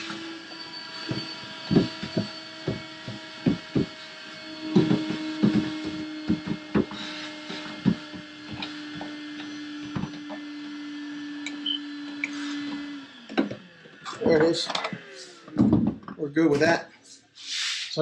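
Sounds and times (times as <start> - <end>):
shop vacuum running: 0.0 - 18.0
nozzle knocking and clattering: 1.0 - 4.0, 14.2 - 16.8.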